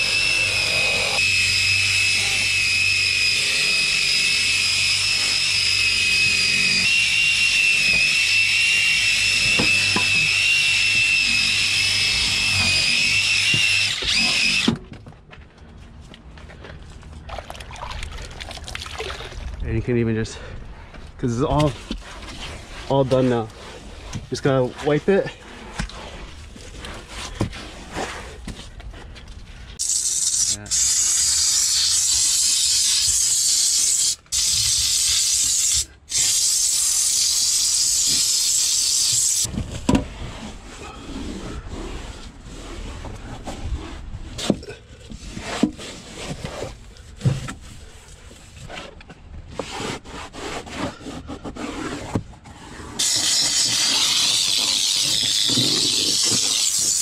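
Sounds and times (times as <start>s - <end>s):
steam cleaner hissing: 29.8s - 39.5s, 53.0s - 57.0s.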